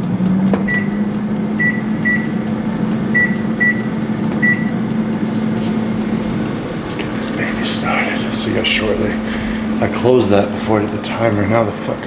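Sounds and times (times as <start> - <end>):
air fryer fan humming: 0.0 - 12.0
microwave keypad beeps: 0.6 - 2.4, 3.1 - 4.8.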